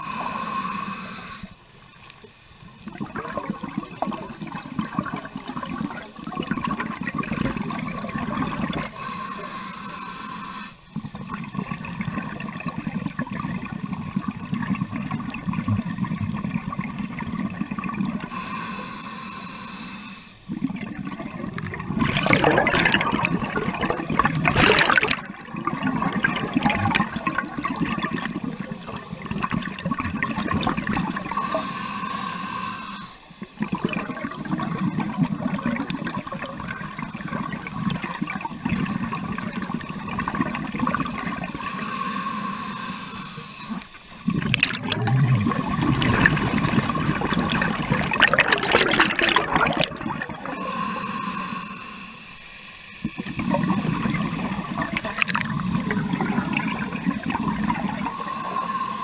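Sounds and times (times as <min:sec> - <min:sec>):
scuba regulator breathing: 0:00.0 - 0:01.8, 0:08.6 - 0:11.1, 0:18.2 - 0:20.7, 0:27.9 - 0:33.6, 0:41.2 - 0:59.0
exhaled bubbles rushing: 0:02.8 - 0:09.0, 0:11.0 - 0:18.3, 0:20.5 - 0:31.4, 0:33.5 - 0:41.6, 0:44.2 - 0:50.6, 0:53.0 - 0:58.2.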